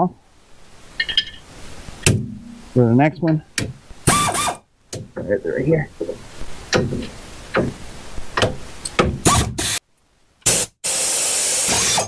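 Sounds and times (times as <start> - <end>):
pneumatic air ratchet hissing: 4.1 - 4.6, 9.2 - 9.8, 10.4 - 12.0.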